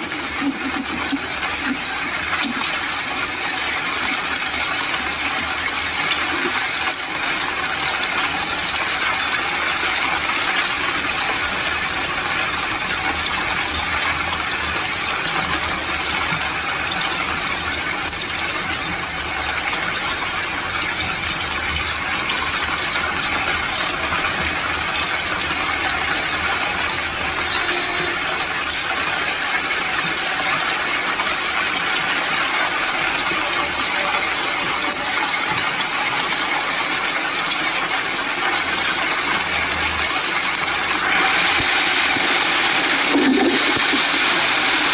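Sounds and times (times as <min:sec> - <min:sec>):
heavy rain on a vehicle: 0:00.0 - 0:44.9.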